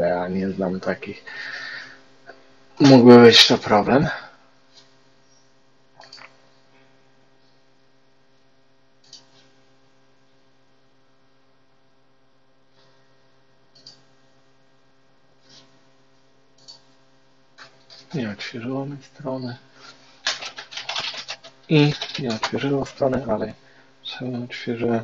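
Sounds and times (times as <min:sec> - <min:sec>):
faint electrical mains hum: 0:00.0 - 0:25.0
computer mouse clicks: 0:06.0 - 0:06.4, 0:09.0 - 0:09.5, 0:13.7 - 0:14.0, 0:16.6 - 0:16.8.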